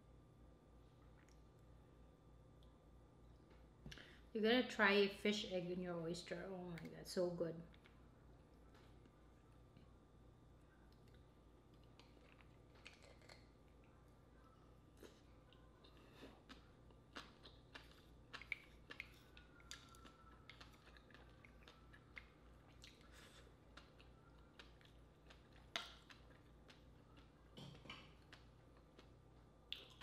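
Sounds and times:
person chewing: 0:10.9 - 0:14.1, 0:14.9 - 0:30.0
wet mouth clicks and lip smacks: 0:17.2 - 0:19.9, 0:29.7 - 0:30.0.

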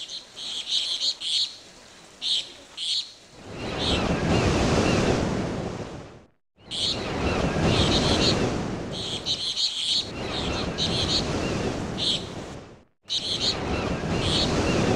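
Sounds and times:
small birds chirping: 0:00.0 - 0:01.6, 0:02.2 - 0:03.2, 0:06.6 - 0:08.3, 0:09.0 - 0:12.3, 0:13.1 - 0:14.8
ocean waves washing: 0:00.0 - 0:14.9.

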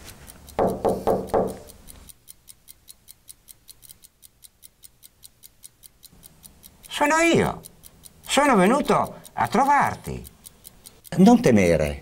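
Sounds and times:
clock ticking: 0:00.0 - 0:12.0
man speaking: 0:06.9 - 0:07.7, 0:08.3 - 0:10.3, 0:11.1 - 0:12.0.

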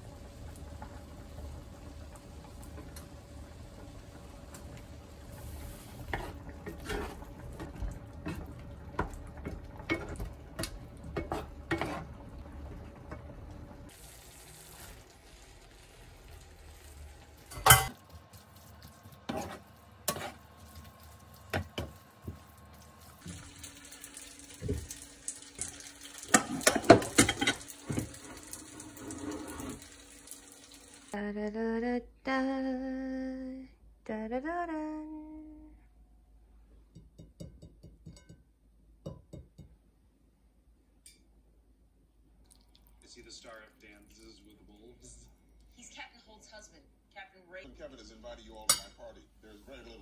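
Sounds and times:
dishes clattering: 0:06.1 - 0:12.2, 0:17.5 - 0:18.0, 0:25.6 - 0:28.3
spatula knocking in frying pan: 0:36.9 - 0:39.8.

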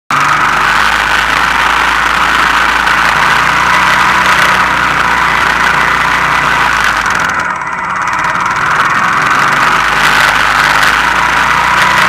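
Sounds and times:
loud steady rushing noise: 0:00.1 - 0:12.0
quad engine running: 0:00.1 - 0:12.0.

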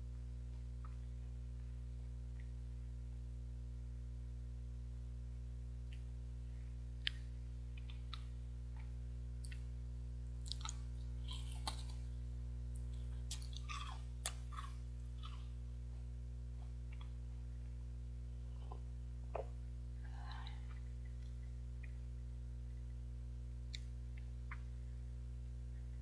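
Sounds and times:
low electrical hum: 0:00.0 - 0:26.0
chewing chocolate: 0:07.0 - 0:09.7, 0:10.4 - 0:17.2.

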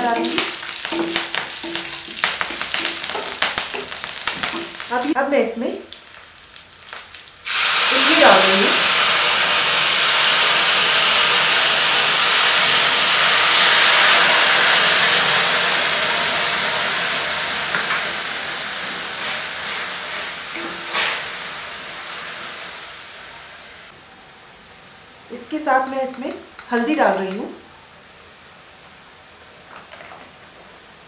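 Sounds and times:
liquid sizzling in hot oil: 0:00.0 - 0:05.2, 0:05.9 - 0:24.0.

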